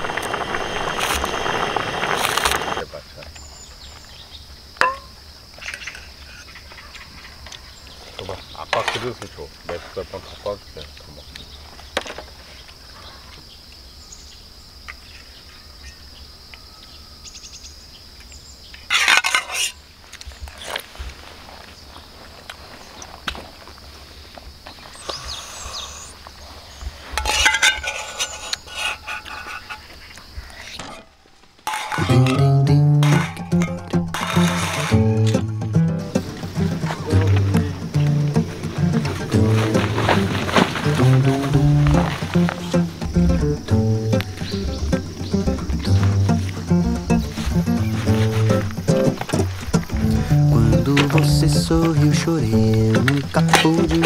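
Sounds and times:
insects chirring: 0.0s - 54.0s
dishes clinking: 4.8s - 5.1s, 27.2s - 29.9s, 31.7s - 33.9s
low voices: 32.0s - 54.0s.

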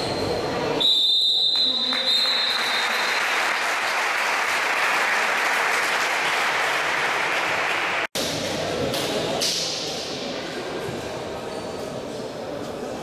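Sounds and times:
crowd applauding: 1.8s - 8.1s.

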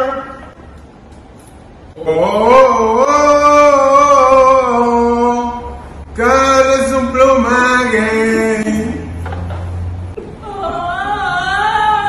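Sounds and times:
man singing unaccompanied: 2.0s - 9.2s.

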